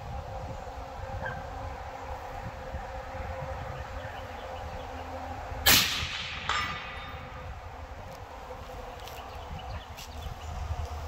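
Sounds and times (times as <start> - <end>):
rifle shot: 5.7 - 7.0.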